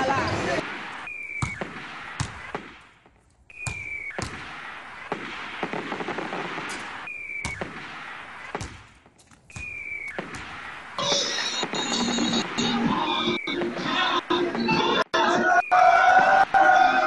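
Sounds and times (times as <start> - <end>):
firework bangs: 0.6 - 12.9
firework whistle: 3.5 - 4.3, 9.5 - 10.4
firework crackle: 4.0 - 9.0.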